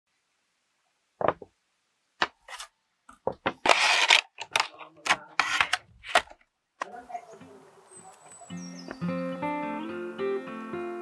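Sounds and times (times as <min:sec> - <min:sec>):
small objects knocking and clicking: 0:01.2 - 0:01.6.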